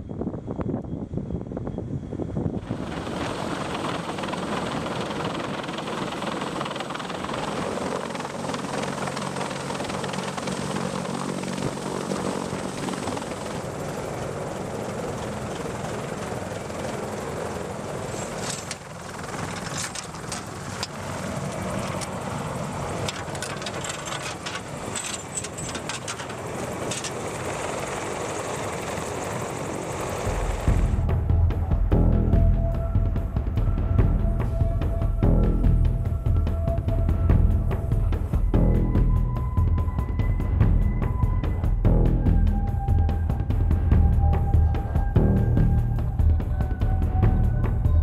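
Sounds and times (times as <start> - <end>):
helicopter hovering overhead: 0.0 - 48.0
sharp clicks and rattles: 23.0 - 27.2.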